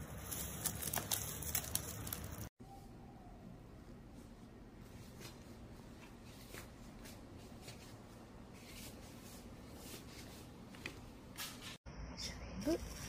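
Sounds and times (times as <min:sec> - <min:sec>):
soft rustling and handling: 0:04.2 - 0:11.8.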